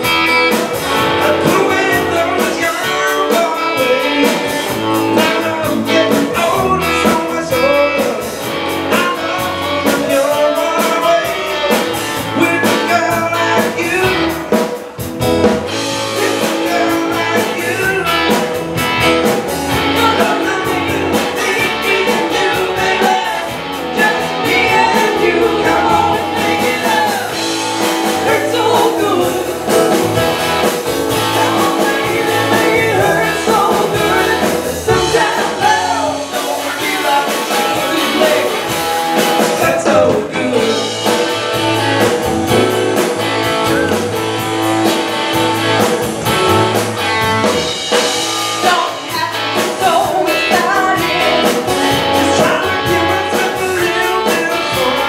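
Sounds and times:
live rock band playing: 0:00.0 - 0:55.0
woman singing lead: 0:19.7 - 0:38.8, 0:48.5 - 0:55.0.

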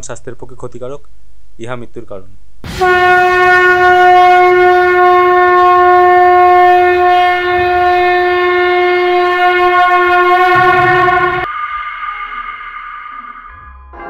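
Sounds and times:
long horn note: 0:02.6 - 0:13.1.

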